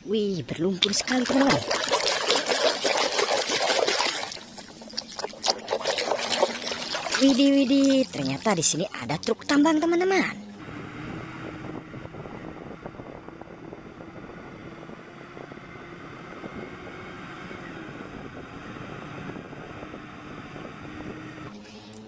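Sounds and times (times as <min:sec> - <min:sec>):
wind noise on microphone: 0:10.6 - 0:21.5.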